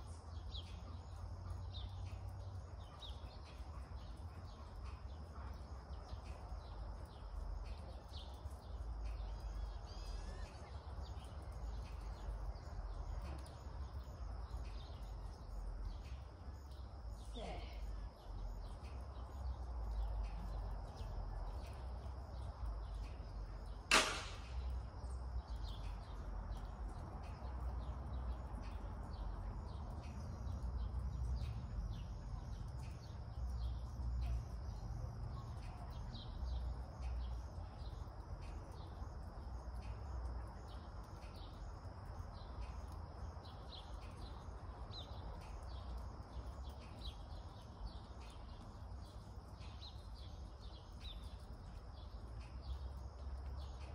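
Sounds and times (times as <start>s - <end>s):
low background rumble: 0.0s - 53.9s
small birds chirping: 0.0s - 53.9s
sharp crack: 23.9s - 24.7s.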